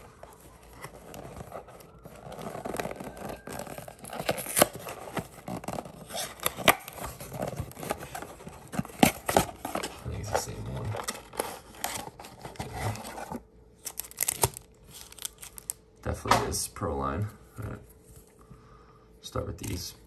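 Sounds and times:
cardboard rustling and clicking: 0:00.0 - 0:15.8
fingers scraping cardboard box: 0:00.7 - 0:13.4.

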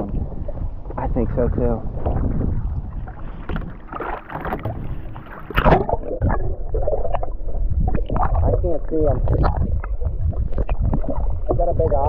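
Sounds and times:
water lapping on boat: 0:00.0 - 0:12.0
wind: 0:00.0 - 0:12.0
camera splashing into water: 0:03.4 - 0:06.4
muffled underwater sound: 0:04.3 - 0:12.0.

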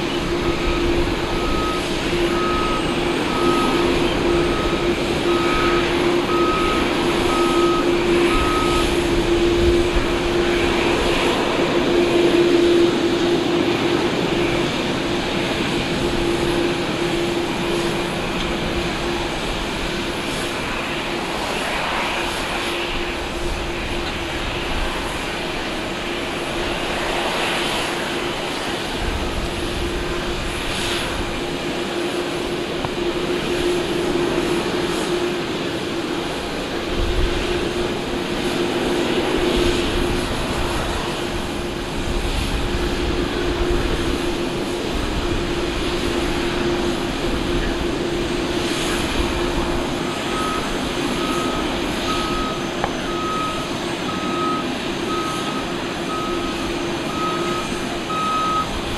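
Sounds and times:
vehicle reversing beeper: 0:00.0 - 0:19.2, 0:49.9 - 0:58.8
jet engines running: 0:00.0 - 0:58.9.

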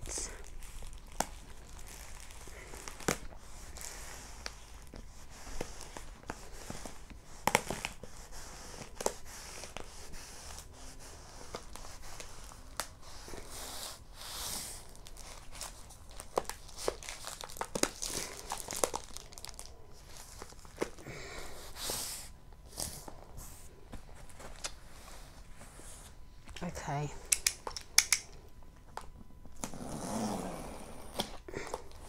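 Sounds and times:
plastic film crinkling: 0:00.2 - 0:08.1, 0:14.6 - 0:21.0.

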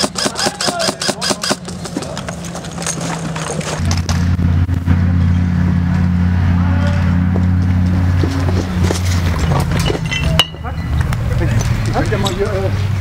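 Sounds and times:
airsoft rifle rapid shots: 0:00.0 - 0:01.7
loud low drone: 0:03.8 - 0:09.4.

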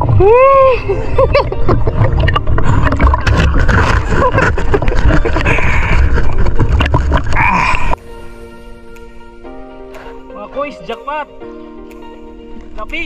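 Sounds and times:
soft music: 0:00.0 - 0:05.9, 0:07.4 - 0:13.0
water sloshing: 0:00.9 - 0:08.0.

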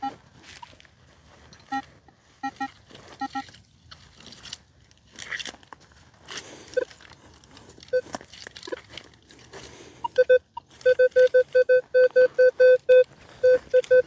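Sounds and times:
metal detector beeps: 0:00.0 - 0:00.7, 0:01.5 - 0:03.5, 0:06.7 - 0:07.0, 0:07.9 - 0:08.1, 0:10.0 - 0:14.0
crunching of dry ground: 0:00.0 - 0:14.0.

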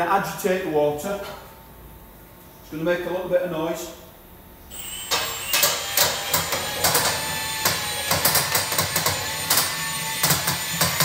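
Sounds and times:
cordless drill motor: 0:04.7 - 0:11.0.

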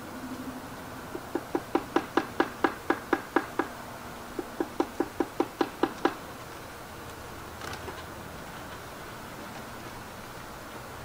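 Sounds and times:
woodpecker tapping on wood: 0:01.1 - 0:06.2.

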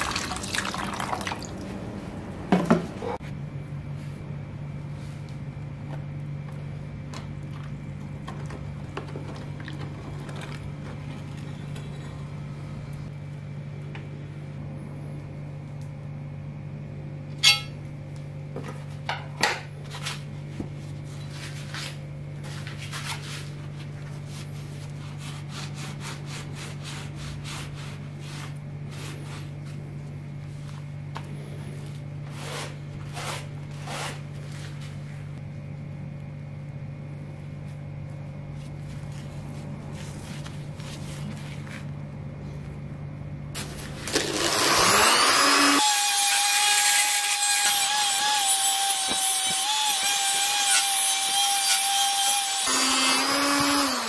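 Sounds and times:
steady low hum: 0:00.0 - 0:45.8
sharp metallic clink: 0:17.4 - 0:17.8.

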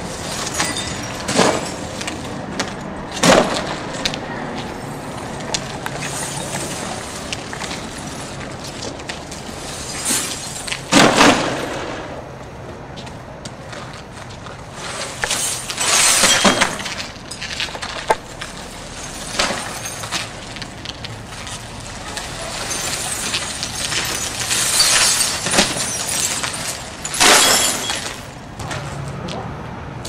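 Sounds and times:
broken glass crackling and crunching: 0:00.2 - 0:02.2, 0:05.9 - 0:11.8, 0:15.0 - 0:28.4.

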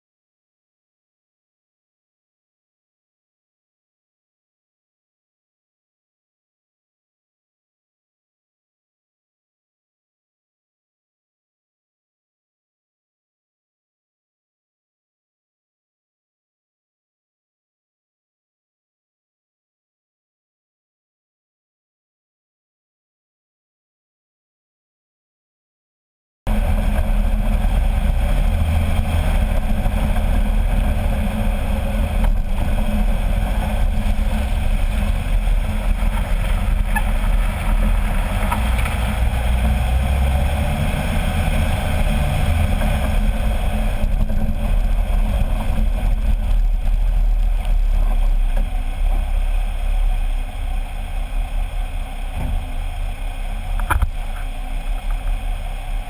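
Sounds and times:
tyre and road noise: 0:26.5 - 0:56.0
wind on microphone: 0:26.5 - 0:56.0.

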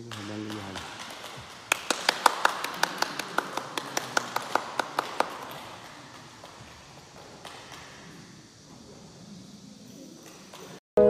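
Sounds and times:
sharp hand slaps in a hall: 0:00.0 - 0:06.5.

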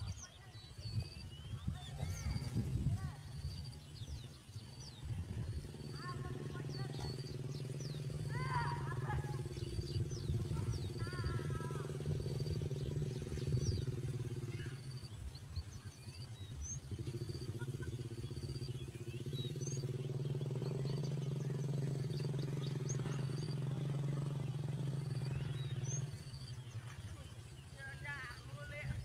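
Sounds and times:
steady low motor hum: 0:00.0 - 0:29.0
chattering bird call: 0:01.6 - 0:29.0.

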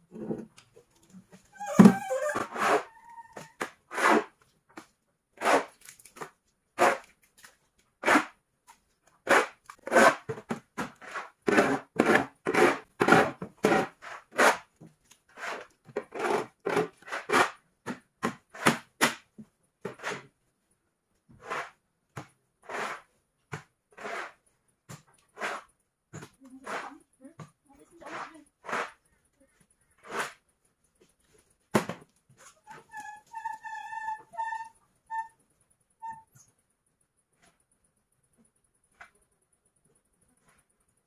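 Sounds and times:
shovels scraping wet manure: 0:03.9 - 0:04.3, 0:05.4 - 0:06.2, 0:06.8 - 0:08.4, 0:25.4 - 0:25.7, 0:30.0 - 0:30.4.

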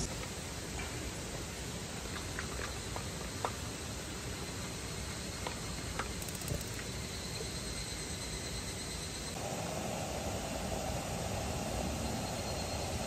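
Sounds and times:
steady gas hiss: 0:09.3 - 0:13.0.

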